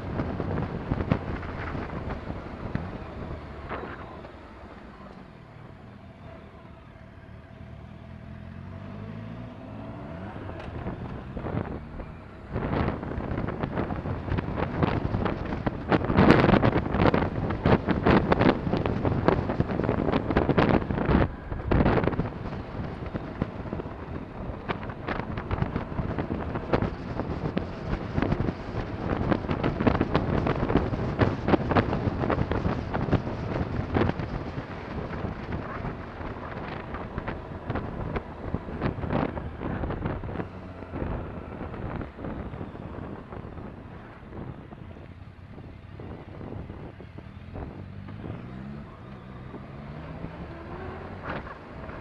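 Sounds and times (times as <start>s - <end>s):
wind buffeting microphone: 0.0s - 5.0s, 10.3s - 52.0s
motorcycle engine running: 10.3s - 52.0s.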